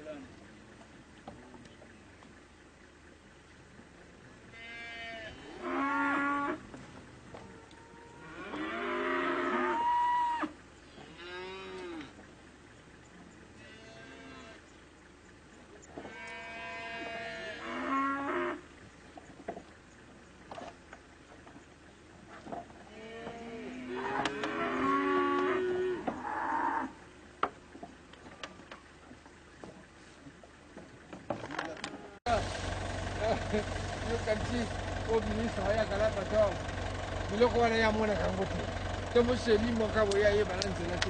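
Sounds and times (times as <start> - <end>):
animal crying: 7.4 - 12.0.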